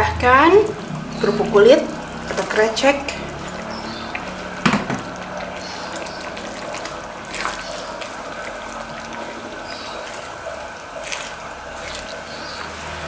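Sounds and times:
sauce bubbling and stirring: 0.7 - 13.0
spatula knocking pan: 4.6 - 5.1.

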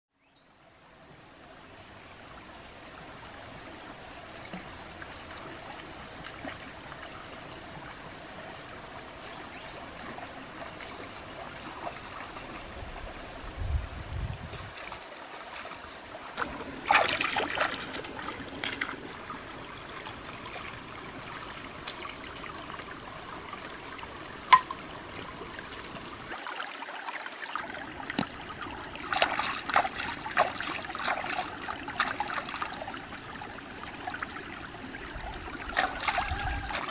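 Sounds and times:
stream trickling over rocks: 0.6 - 36.9
splashing water: 14.5 - 36.9.

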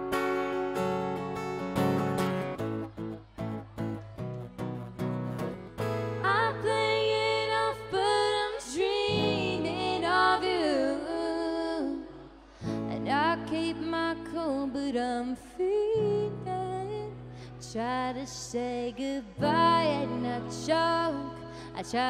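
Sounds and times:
acoustic guitar strumming: 0.0 - 7.5
woman singing: 6.1 - 22.0.

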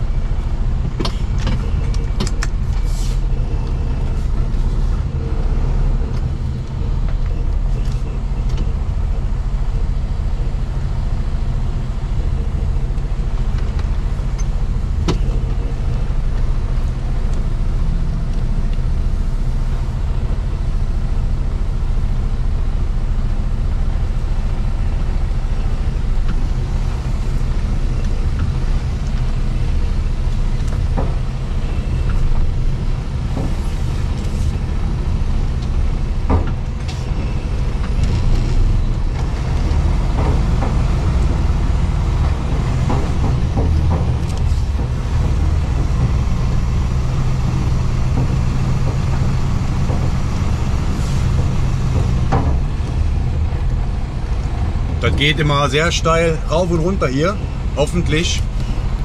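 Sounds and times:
truck diesel engine running: 0.0 - 59.0
short knocks and rattles: 36.2 - 53.7.

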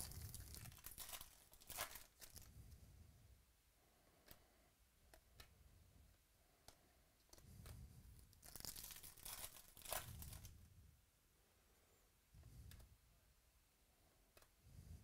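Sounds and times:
foil wrapper tearing and crinkling: 0.0 - 2.5, 8.4 - 10.5
trading cards being handled: 0.0 - 2.5, 7.2 - 10.6.

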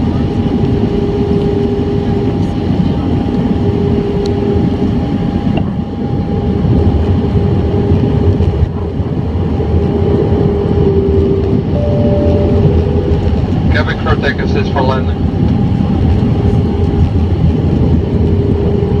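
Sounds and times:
airplane cabin roar: 0.0 - 19.0
constant hum: 0.0 - 19.0.

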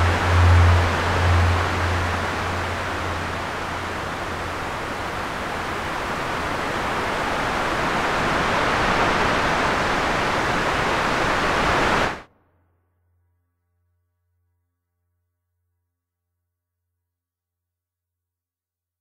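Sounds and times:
ocean surf washing: 0.0 - 12.3.

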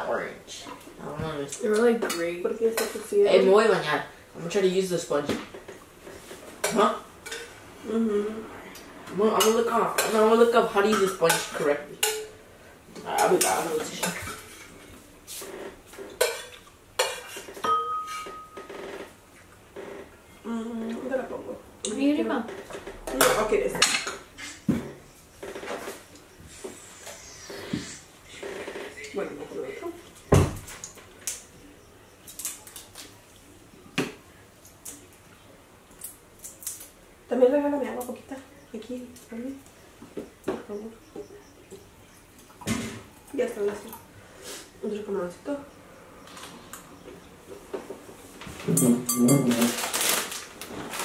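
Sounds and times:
utensils clinking on ceramic bowls: 16.2 - 18.7, 48.6 - 49.9.

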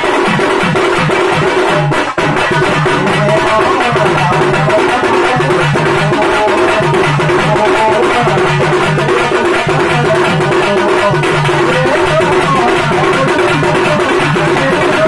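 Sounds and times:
side drum fast rhythm: 0.0 - 15.0.

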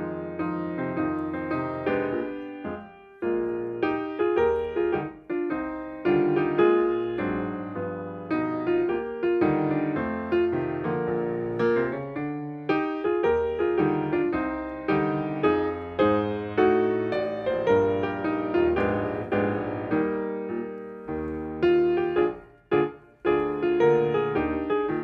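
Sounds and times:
solo piano chords and melody: 0.0 - 25.0.

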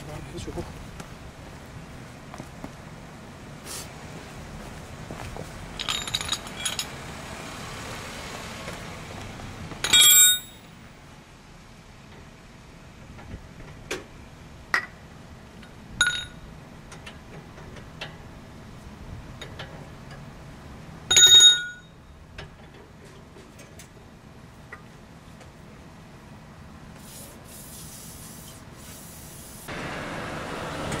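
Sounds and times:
tools clinking on metal cover: 5.8 - 7.0, 9.8 - 10.7, 15.6 - 16.4.

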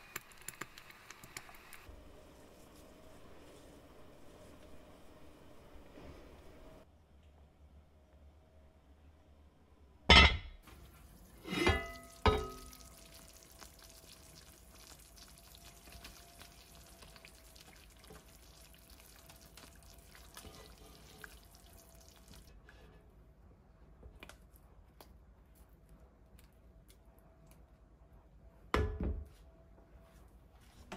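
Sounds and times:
sauce simmering hiss: 10.7 - 22.5
spatula stirring sauce: 10.7 - 22.5.

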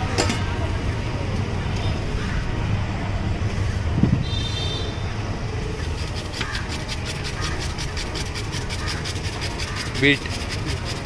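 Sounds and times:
low traffic rumble: 0.0 - 11.0
spatula chopping on griddle: 6.0 - 11.0.

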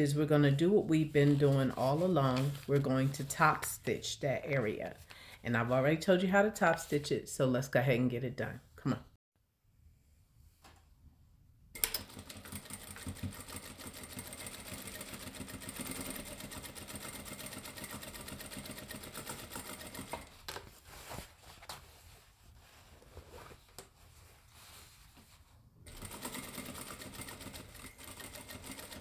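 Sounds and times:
sewing machine stitching: 11.8 - 20.3, 25.9 - 29.0
sewing machine clicks: 25.9 - 29.0.

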